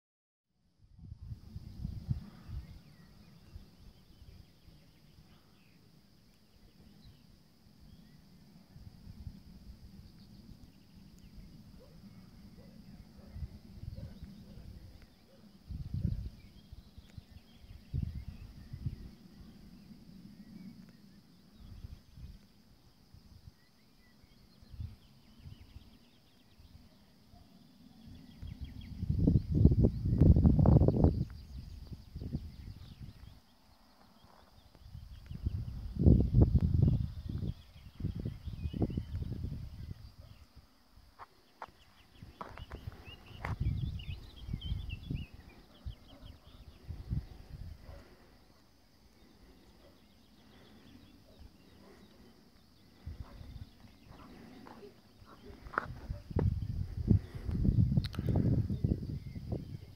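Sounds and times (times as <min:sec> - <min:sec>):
wind rumbling on microphone: 0:00.6 - 0:59.9
faint birds chirping: 0:00.7 - 0:59.9
distant bird chirps: 0:37.0 - 0:59.9.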